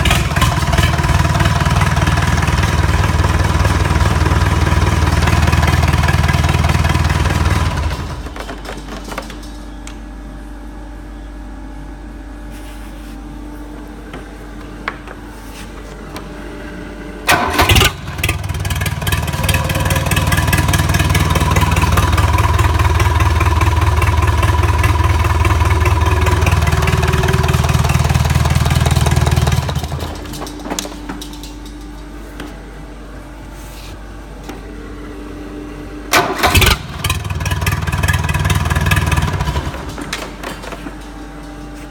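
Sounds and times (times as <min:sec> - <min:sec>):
engine running loudly: 0:00.0 - 0:08.5, 0:17.3 - 0:30.6, 0:36.1 - 0:41.0
engine starting clatter: 0:17.3 - 0:22.7, 0:36.1 - 0:41.2.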